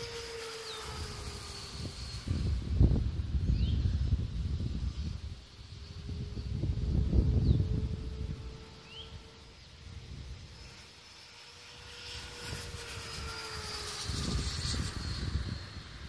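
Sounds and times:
wind rumbling on microphone: 0.0 - 10.9, 11.6 - 16.0
small airplane engine drone: 0.0 - 16.0.

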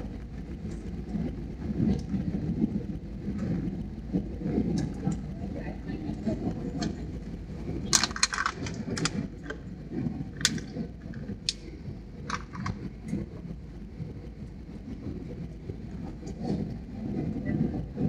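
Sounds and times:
aircraft engines and airflow rumble: 0.0 - 18.0
sharp clicks and crackles: 7.8 - 9.7, 10.3 - 13.2.

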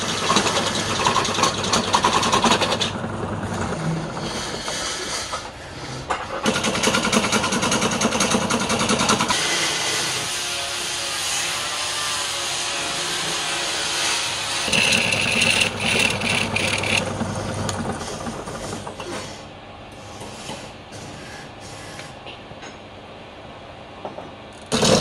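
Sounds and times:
wood lathe spinning: 0.0 - 5.5, 13.0 - 19.0
gouge scraping wood: 14.7 - 17.4.

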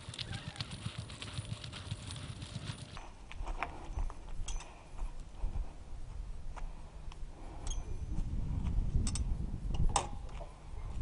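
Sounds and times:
bicycle rolling over gravel: 0.0 - 3.0
bike clicks and rattles: 0.0 - 3.0.

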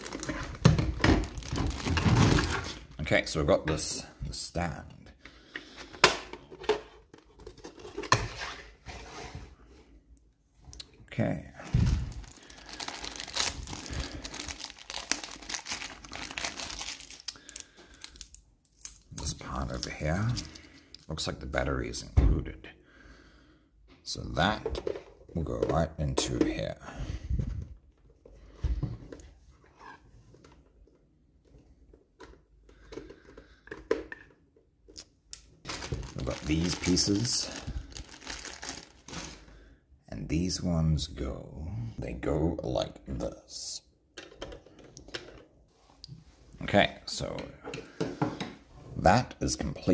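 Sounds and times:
plastic toy parts handled: 11.8 - 21.0.

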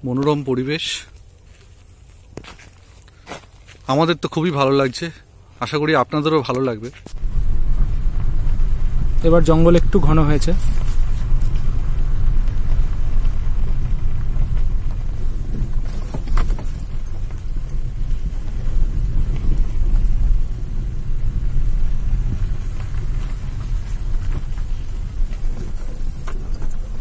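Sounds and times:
car rumbling on dirt track: 6.1 - 27.0
light clicks and rattles: 12.4 - 20.8, 21.9 - 27.0.

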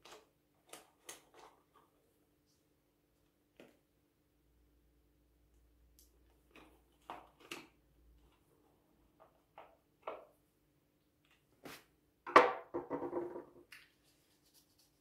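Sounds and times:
rubbing and rustling: 13.8 - 15.0.

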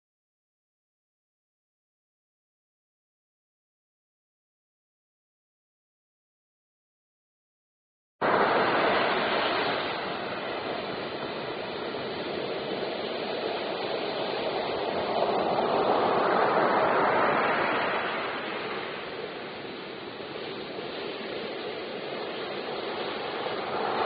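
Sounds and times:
ocean waves breaking: 8.2 - 24.0.

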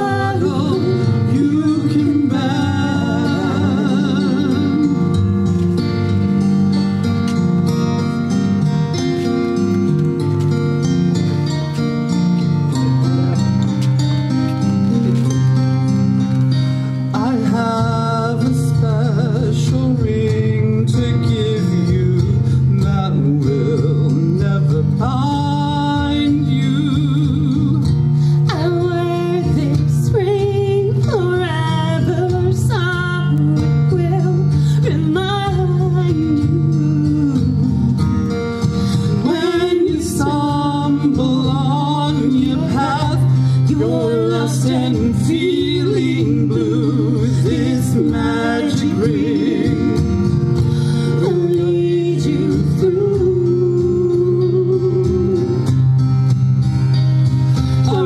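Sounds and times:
person singing: 0.0 - 5.7, 17.1 - 38.1, 39.1 - 55.8, 57.8 - 58.0
band playing: 0.0 - 17.3
acoustic guitar: 0.0 - 58.0.

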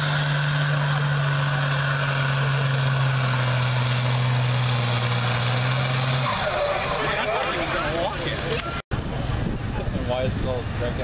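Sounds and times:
tractor engine running under full load: 0.0 - 10.8.

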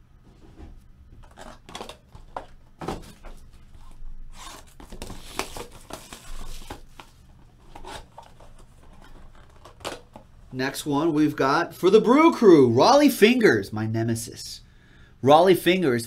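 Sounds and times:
cardboard packaging torn open: 1.2 - 2.1.

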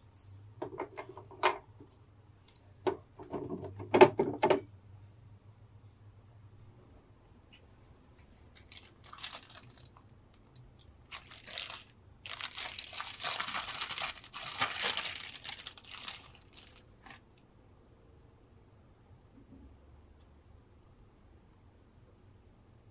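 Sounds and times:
plastic bag crinkling: 8.5 - 17.2.

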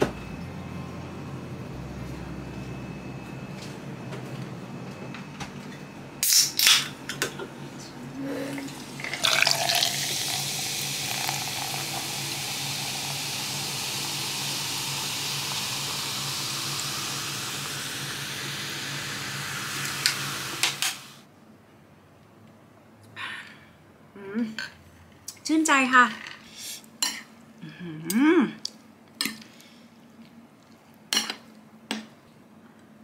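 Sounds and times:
water pouring into steel tumbler: 9.0 - 16.1.

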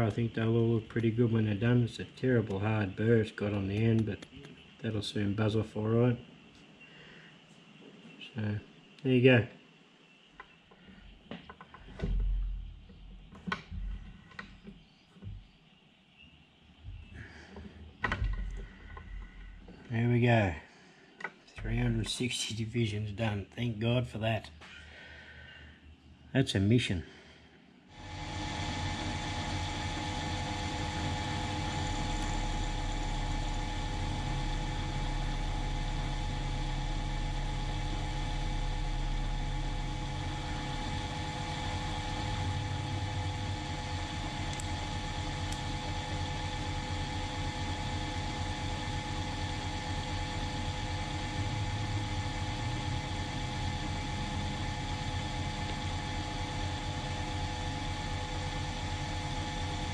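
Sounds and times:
drill motor hum and whine: 28.0 - 59.9.

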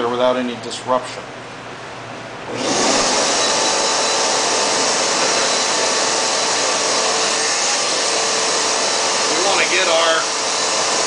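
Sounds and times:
compressed air rushing: 2.5 - 10.2.

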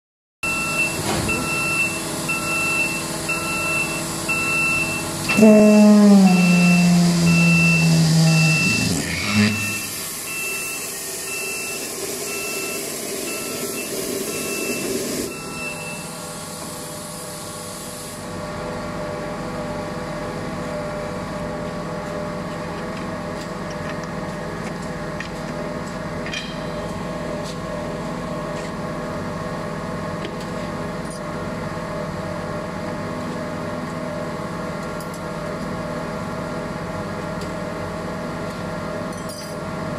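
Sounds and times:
alarm beeping: 0.4 - 16.2
loud machine hum: 0.5 - 39.1.

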